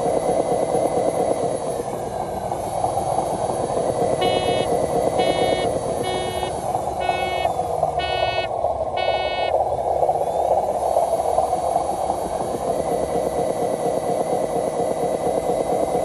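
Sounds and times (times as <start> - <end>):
electric motor whine: 4.0 - 9.5
short tooting beeps: 4.2 - 9.5.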